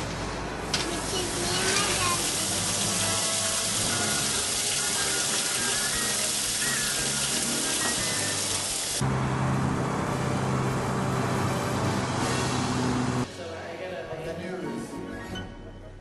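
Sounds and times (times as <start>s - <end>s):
water rushing into washing machine: 0.8s - 9.0s.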